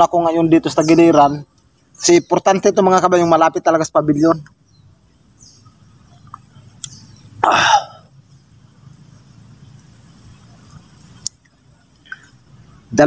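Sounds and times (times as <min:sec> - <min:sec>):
faint clicks: 0:06.0 - 0:07.0, 0:10.7 - 0:12.5.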